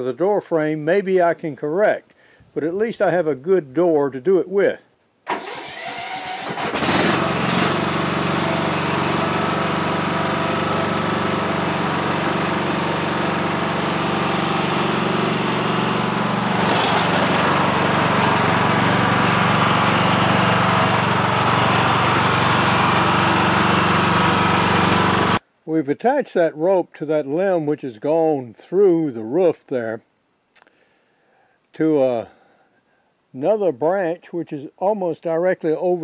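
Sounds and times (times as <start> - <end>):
lawn mower engine running: 5.3 - 25.4.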